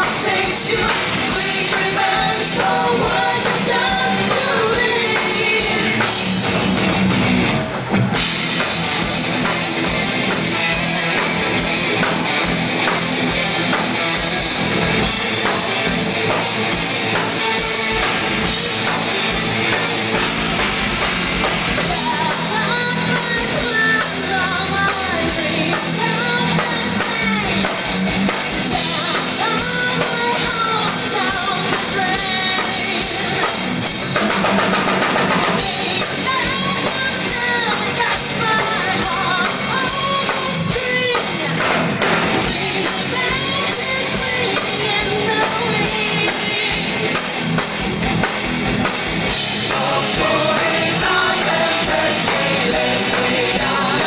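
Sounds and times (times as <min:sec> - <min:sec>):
woman singing: 0:00.0 - 0:06.1, 0:21.8 - 0:27.8, 0:28.6 - 0:33.6, 0:35.6 - 0:41.7, 0:42.4 - 0:47.3, 0:49.7 - 0:54.0
live rock band playing: 0:00.0 - 0:54.0.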